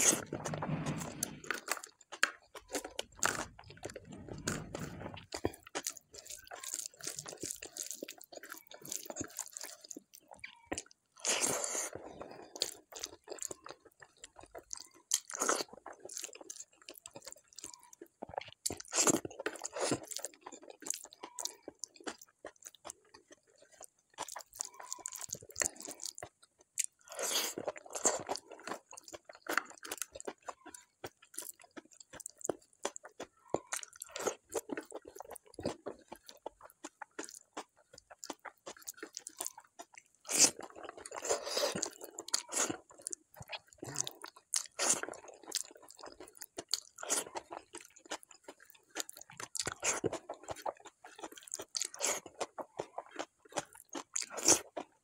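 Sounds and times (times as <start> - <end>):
person chewing food: 0.0 - 55.0.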